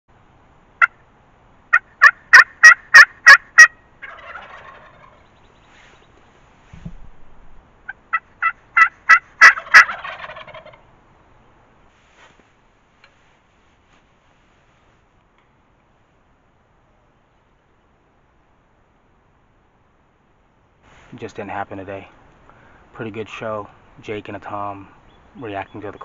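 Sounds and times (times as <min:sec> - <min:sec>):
turkey gobble: 0:00.8 - 0:01.0, 0:01.7 - 0:05.4, 0:07.9 - 0:10.8
turkey yelps: 0:01.7 - 0:05.4, 0:07.9 - 0:10.8.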